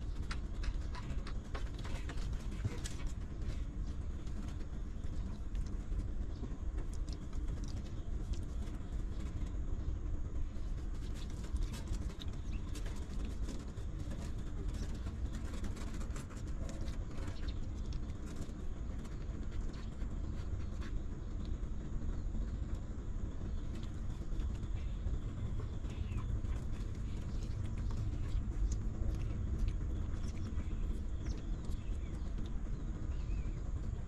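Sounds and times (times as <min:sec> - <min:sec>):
puppies suckling: 0:00.0 - 0:09.5, 0:22.4 - 0:34.0
steady low rumble: 0:00.0 - 0:34.0.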